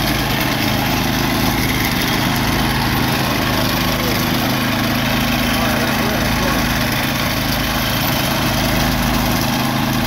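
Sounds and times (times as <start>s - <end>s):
small petrol engine running: 0.0s - 10.0s.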